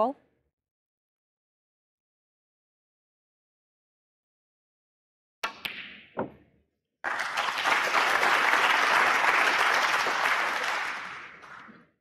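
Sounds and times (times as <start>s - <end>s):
audience applauding: 7.0s - 11.9s.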